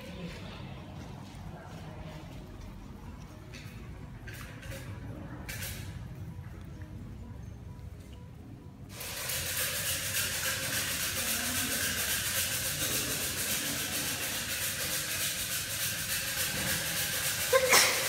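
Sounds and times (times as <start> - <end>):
steady rushing hiss: 8.9 - 18.0.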